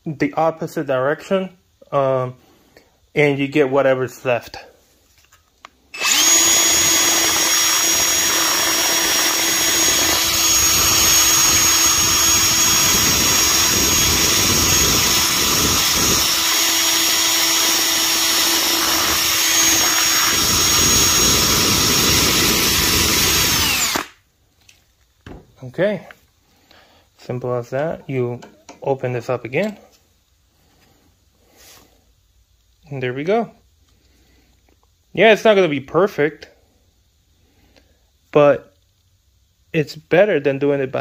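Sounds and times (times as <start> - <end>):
cordless drill motor whine: 6.0 - 24.2.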